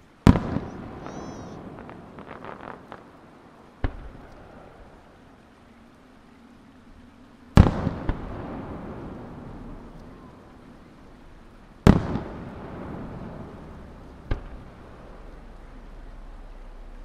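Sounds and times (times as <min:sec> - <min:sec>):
firework booms: 0:00.2 - 0:05.1, 0:07.6 - 0:10.3, 0:11.8 - 0:16.8.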